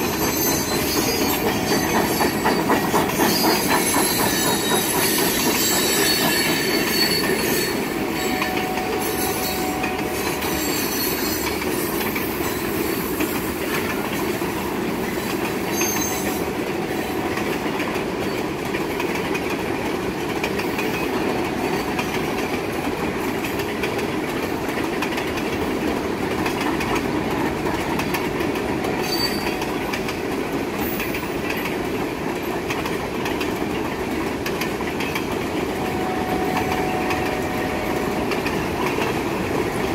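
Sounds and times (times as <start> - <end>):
faint wheel squeal: 0.0 - 8.6
freight train wheels rumbling on rails: 0.0 - 39.9.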